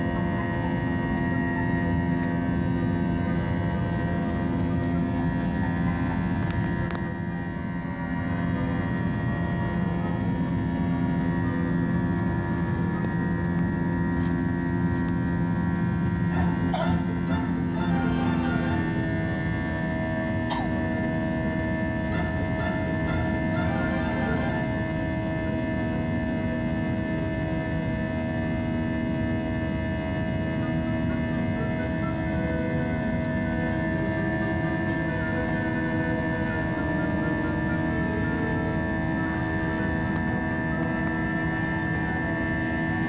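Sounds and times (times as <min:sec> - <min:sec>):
jet engine drone in cabin: 0:00.0 - 0:43.0.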